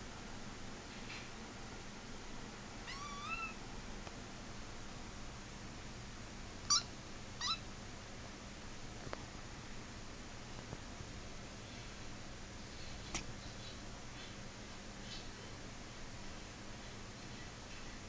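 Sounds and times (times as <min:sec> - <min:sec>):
kitten meowing: 0:02.8 - 0:03.6, 0:06.7 - 0:07.6.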